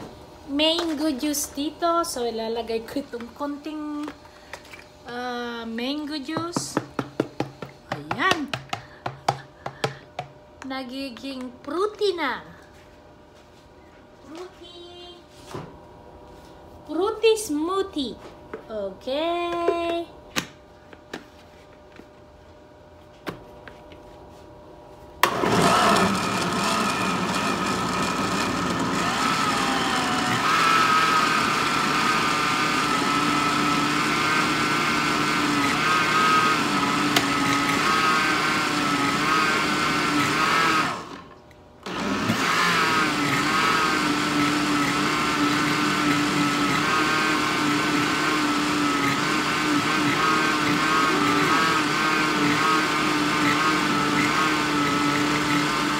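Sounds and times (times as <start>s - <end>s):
electric blender running: 25.2s - 55.9s.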